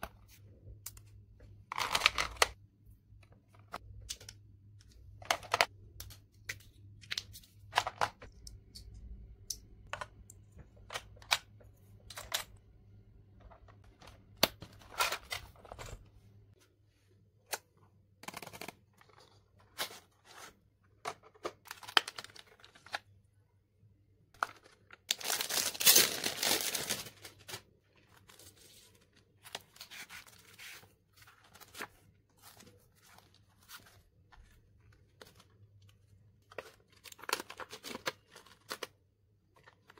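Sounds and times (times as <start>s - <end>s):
plastic packaging crinkling: 24.5s - 27.7s.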